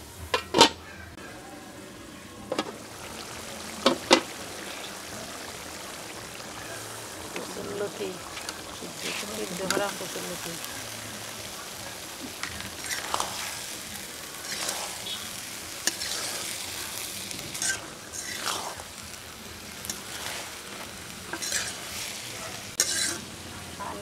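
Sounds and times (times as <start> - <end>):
food sizzling in oil: 0.0 - 24.0
metal spatula scraping wok: 7.0 - 10.3, 12.3 - 13.8, 14.4 - 19.0, 19.8 - 23.3.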